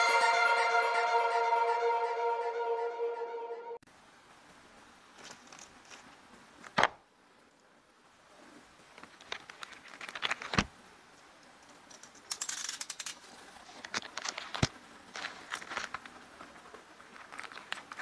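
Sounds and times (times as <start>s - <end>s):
plastic package crinkling: 9.1s - 10.6s.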